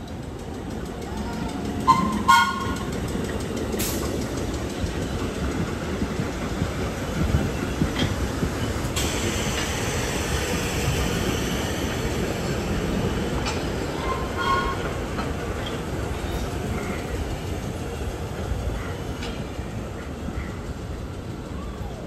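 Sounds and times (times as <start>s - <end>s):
subway train rumbling: 0.0s - 22.0s
train wheel clacks: 0.0s - 22.0s
high wheel squeal: 1.8s - 3.0s, 13.8s - 17.1s.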